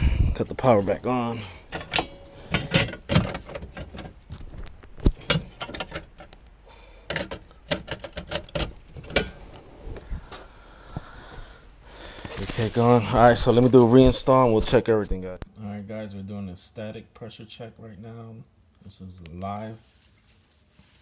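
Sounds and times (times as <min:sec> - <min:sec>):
equipment handling clicks and knocks: 0:01.7 - 0:04.2, 0:05.0 - 0:06.4, 0:07.1 - 0:09.4.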